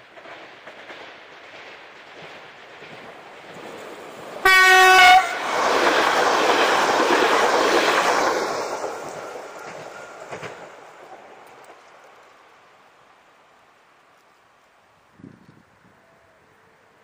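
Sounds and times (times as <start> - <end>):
train wheels rushing on rail: 0.0 - 16.3
train horn blast: 4.4 - 5.4.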